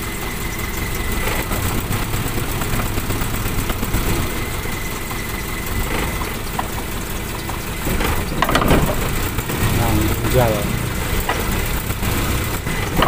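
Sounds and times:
car engine idling: 0.0 - 13.0.

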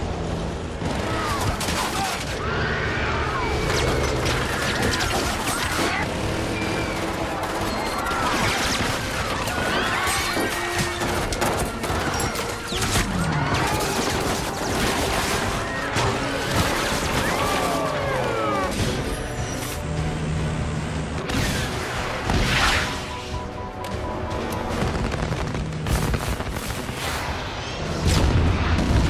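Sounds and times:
people screaming: 1.0 - 11.4, 13.0 - 14.4, 15.6 - 18.8
music: 6.6 - 26.9.

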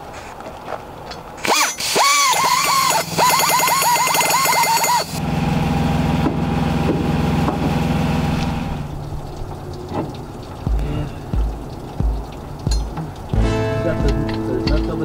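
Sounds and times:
fast rattle: 1.4 - 5.2
power tool bit whining: 1.4 - 5.2
steady power tool hum: 1.4 - 6.2.

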